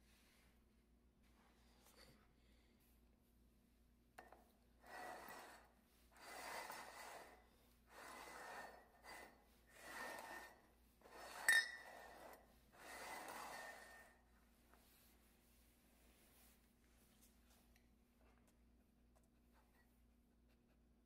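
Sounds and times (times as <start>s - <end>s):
mugs scraping over wooden floor: 4.8s - 14.2s.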